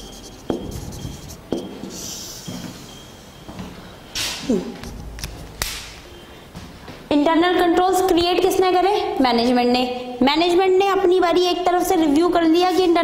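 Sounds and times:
marker squeaking on whiteboard: 0:00.0 - 0:02.4
breath noise: 0:01.0 - 0:03.3.

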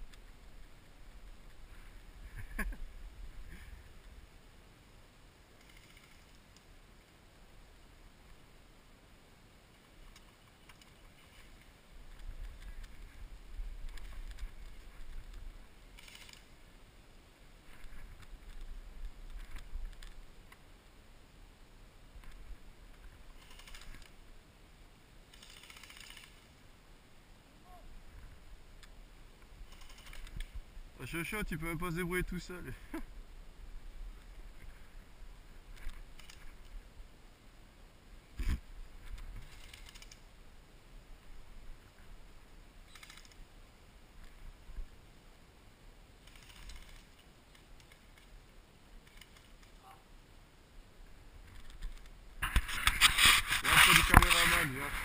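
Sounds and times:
distant airsoft rifle clicking: 0:25.3 - 0:26.4.

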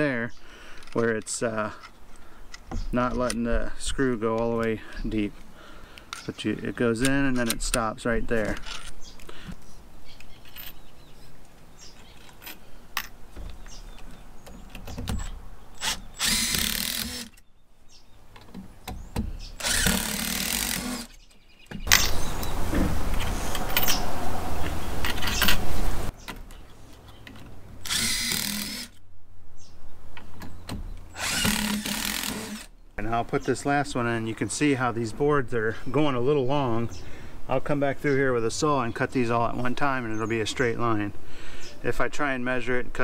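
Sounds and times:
power drill driving screws: 0:15.8 - 0:17.4, 0:19.6 - 0:21.2, 0:27.8 - 0:29.0, 0:31.2 - 0:32.7.

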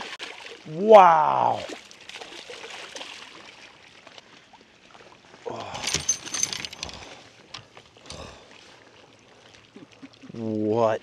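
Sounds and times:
fish splashing and thrashing: 0:01.6 - 0:04.3.

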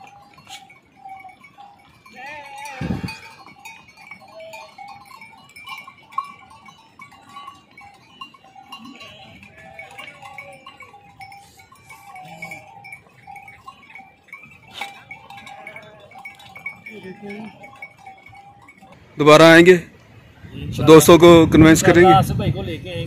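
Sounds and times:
sheep and goats bleating: 0:00.0 - 0:05.1, 0:08.5 - 0:18.5
animal bells clinking: 0:00.0 - 0:22.1.

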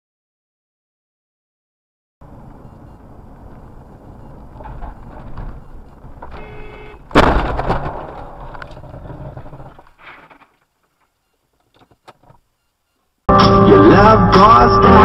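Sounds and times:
road and engine noise: 0:02.2 - 0:13.2
car crash: 0:07.0 - 0:10.6
crunching and rattling: 0:07.0 - 0:12.0.

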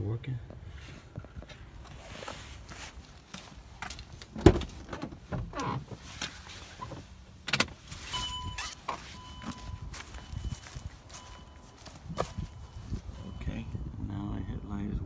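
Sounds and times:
electronic warning tone: 0:08.2 - 0:13.8.

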